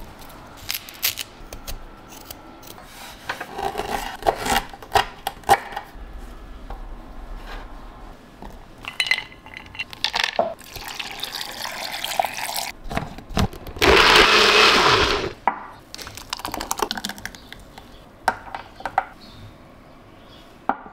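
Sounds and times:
blender whirring: 0:13.8 - 0:15.4.

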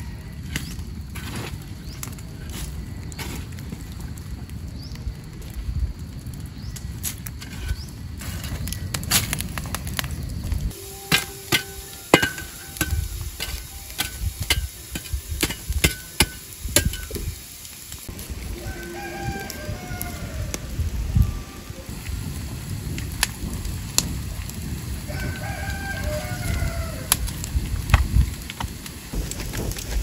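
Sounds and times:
fire crackling and popping: 0:00.0 - 0:30.0
low rumble: 0:18.0 - 0:25.1.

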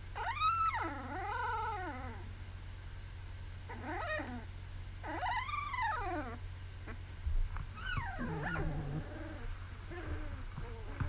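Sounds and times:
puppy whining and howling: 0:00.1 - 0:02.3, 0:03.7 - 0:06.4, 0:07.8 - 0:11.0.

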